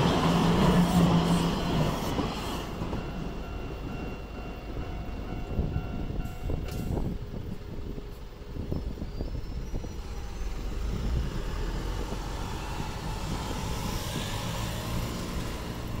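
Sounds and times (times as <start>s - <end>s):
bus driving past: 9.8s - 16.0s.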